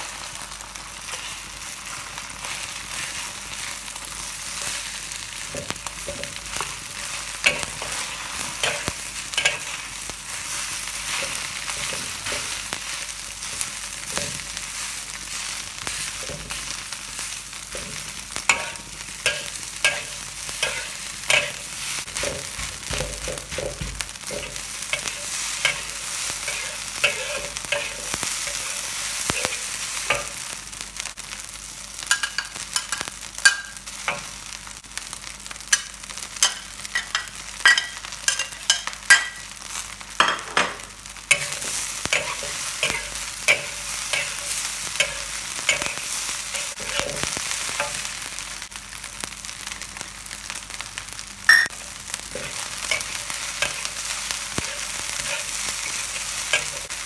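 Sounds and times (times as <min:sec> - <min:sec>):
rice sizzling in a wok: 0:00.0 - 0:57.0
metal spatula scraping a wok: 0:17.7 - 0:22.6, 0:24.3 - 0:30.3, 0:41.3 - 0:48.0, 0:54.6 - 0:56.9.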